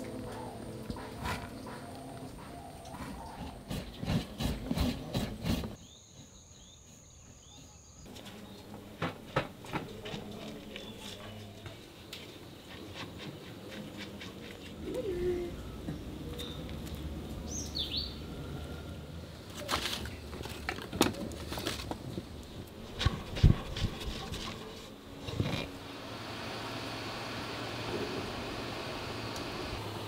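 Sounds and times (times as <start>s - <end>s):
bird chirps: 17.5s - 18.3s
flour scraping in a clay pot: 22.8s - 25.8s.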